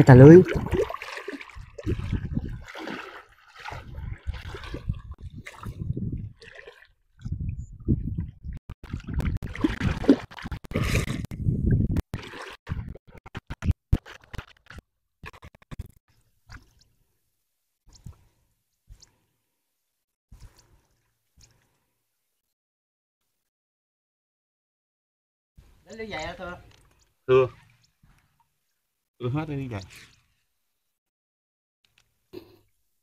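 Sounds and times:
shallow water splashing: 0:00.0 - 0:07.4, 0:08.2 - 0:11.3, 0:12.1 - 0:14.8.

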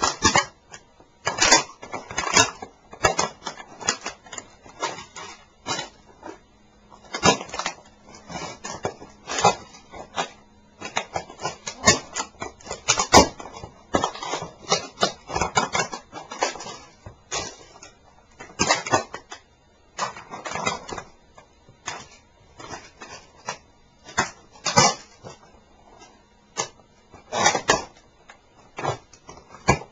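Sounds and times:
plastic model cracking underfoot: 0:00.0 - 0:06.0.

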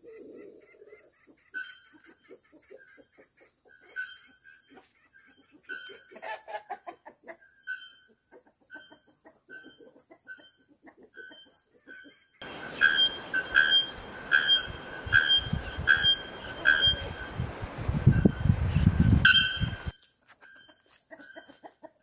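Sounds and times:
bellbird metallic ringing call: 0:01.5 - 0:02.0, 0:03.7 - 0:04.6, 0:07.6 - 0:08.1, 0:11.2 - 0:17.5, 0:19.2 - 0:21.7.

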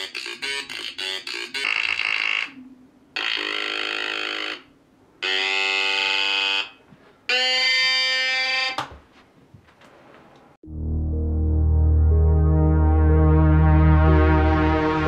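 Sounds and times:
buzzy electronic synth tones: 0:10.6 - 0:15.0.

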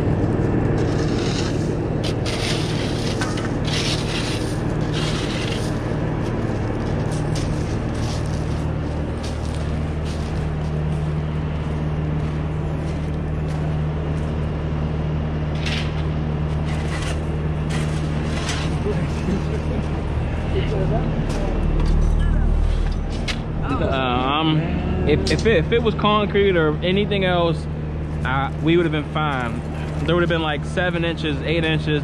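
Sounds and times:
machine engine running: 0:00.0 - 0:32.0
scraping and rubbing: 0:00.7 - 0:10.3, 0:16.6 - 0:20.4.

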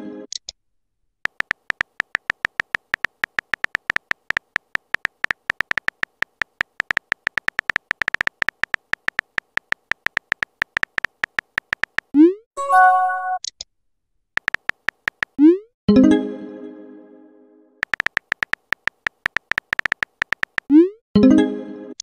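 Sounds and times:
keyboard typing sound effect: 0:01.2 - 0:13.5, 0:14.4 - 0:15.6, 0:17.8 - 0:21.0.

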